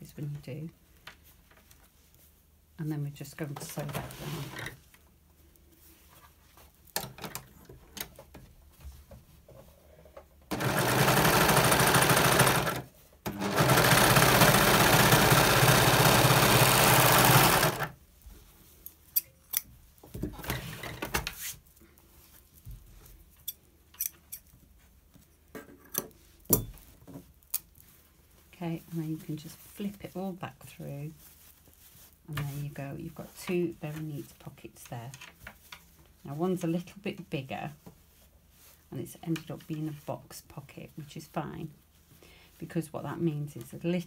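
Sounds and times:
overlocker stitching fabric: 0:10.5 - 0:18.0.

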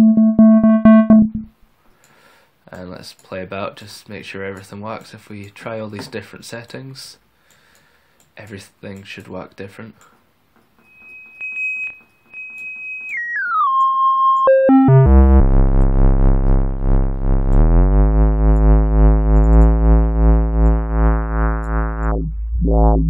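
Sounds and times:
synthesizer test tone: 0:00.0 - 0:01.5, 0:13.1 - 0:23.0.

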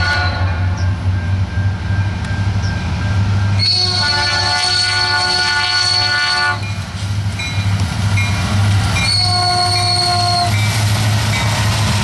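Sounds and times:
locomotive horn: 0:00.0 - 0:00.8, 0:03.5 - 0:06.8, 0:09.0 - 0:10.7
diesel locomotives rumbling past: 0:00.0 - 0:12.0.

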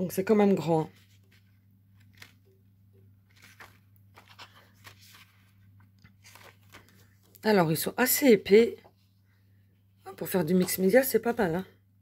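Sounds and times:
low steady hum: 0:00.0 - 0:12.0
plastic sheets rustling and clicking: 0:01.0 - 0:02.6, 0:03.2 - 0:07.4.

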